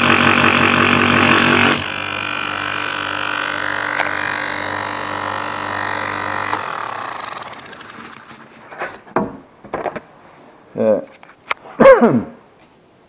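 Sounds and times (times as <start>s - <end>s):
bench grinder motor hum and whine: 0.0s - 8.5s
grinder winding down: 0.0s - 8.5s.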